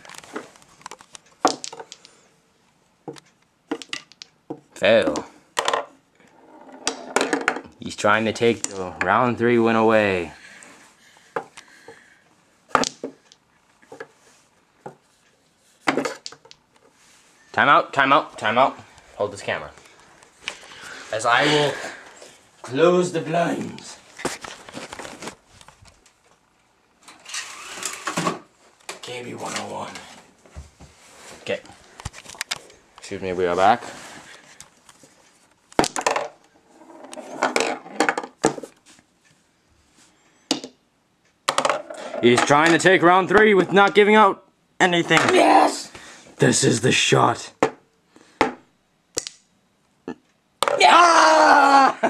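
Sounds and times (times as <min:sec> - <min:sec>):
pool balls and cue clacking: 0:03.1 - 0:07.8, 0:35.8 - 0:38.9.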